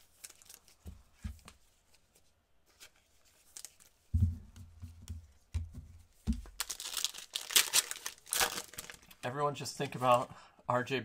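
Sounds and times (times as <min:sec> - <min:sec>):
foil pack crinkling: 0:00.1 - 0:00.8, 0:06.4 - 0:09.2
hands handling cards on a table: 0:00.2 - 0:09.1.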